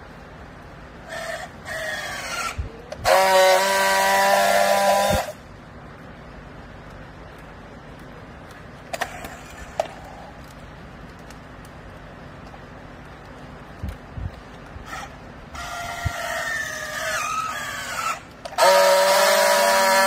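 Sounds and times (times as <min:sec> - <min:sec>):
loud steady welding buzz: 0:00.0 - 0:20.0
strapping tool motor whines: 0:16.4 - 0:20.0.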